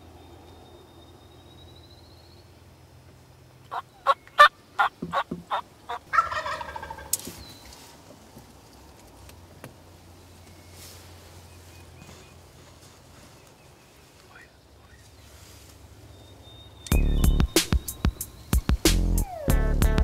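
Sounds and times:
turkey yelps: 0:03.7 - 0:07.1
turkey gobble: 0:03.7 - 0:07.2.

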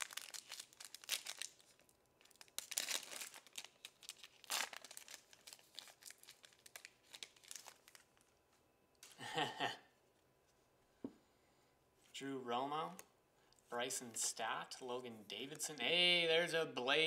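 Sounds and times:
foil wrapper crinkling and tearing: 0:00.0 - 0:08.3.

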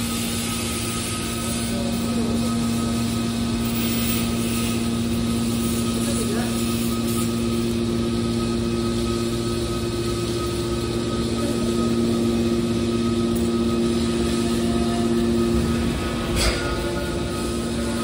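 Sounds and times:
hydraulic machine motor hum: 0:07.7 - 0:18.0.

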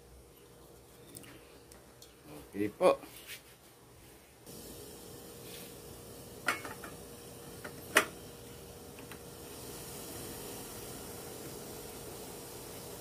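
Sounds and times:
faint steady hiss: 0:00.0 - 0:13.0
metal steamer clanking on pot: 0:06.4 - 0:07.0.

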